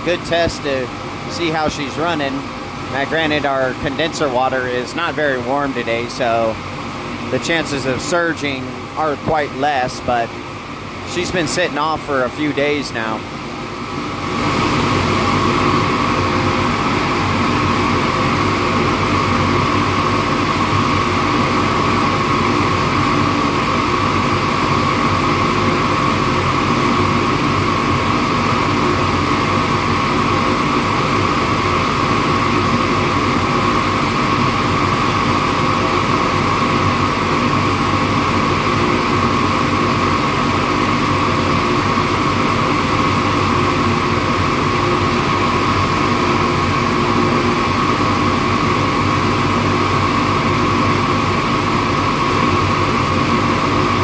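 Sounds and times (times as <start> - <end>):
chiller compressor high whine: 0.0 - 54.0.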